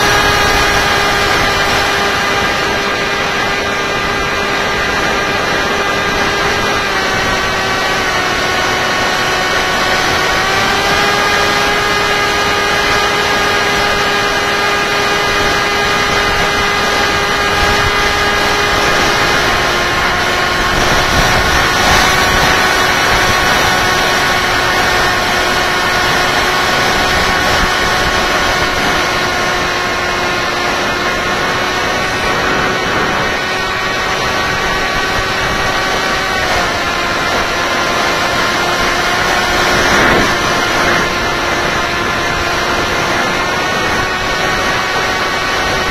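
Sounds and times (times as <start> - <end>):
electric motor and propeller whining: 0.0 - 45.9
wind rushing: 15.2 - 45.9.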